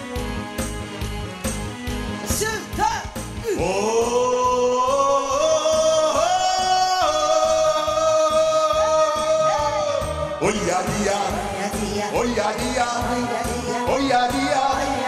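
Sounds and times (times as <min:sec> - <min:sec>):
backing music with beat: 0:00.0 - 0:15.0
man singing high notes: 0:03.4 - 0:09.7.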